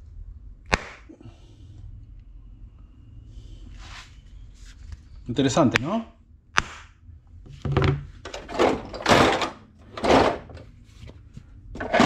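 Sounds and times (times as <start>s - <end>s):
tools rattling: 7.5s - 10.7s, 11.8s - 12.0s
metal drawer sliding open and shut: 7.7s - 10.7s, 11.8s - 12.0s.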